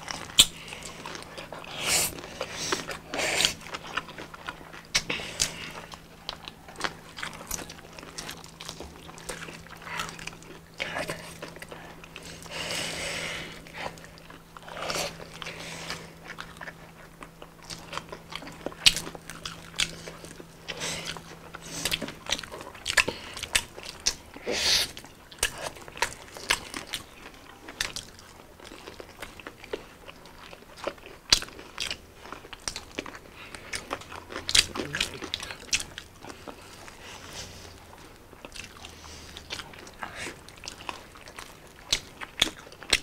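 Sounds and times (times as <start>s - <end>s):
chewing: 0.0s - 43.0s
crunchy bites of fried chicken: 13.4s - 43.0s.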